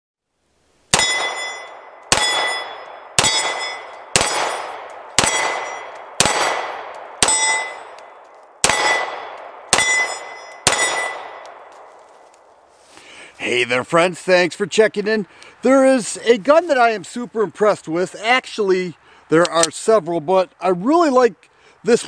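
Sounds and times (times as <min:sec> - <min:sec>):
steel targets ringing: 0:00.9 - 0:11.4
pistol shots: 0:00.9 - 0:11.8.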